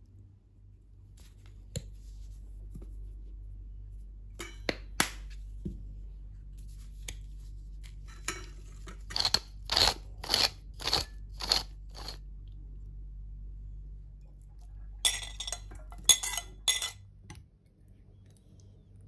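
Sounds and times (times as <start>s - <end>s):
pepper grinder crunching: 9.0s - 12.2s.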